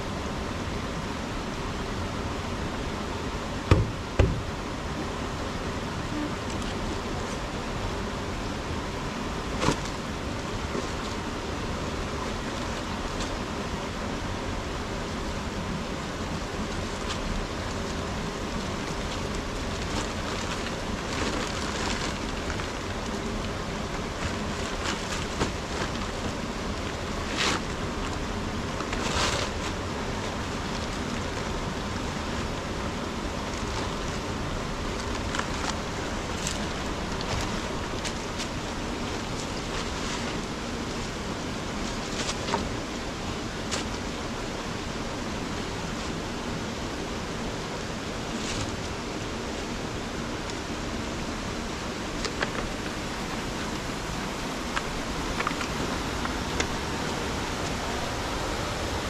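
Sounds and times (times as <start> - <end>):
steady rushing hiss: 0.0 - 59.0
plastic sack rustling: 16.7 - 32.4, 33.3 - 42.9.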